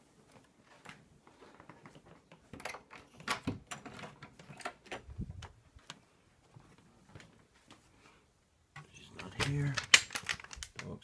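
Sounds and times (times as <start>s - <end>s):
clicks and light knocks: 8.7s - 11.0s.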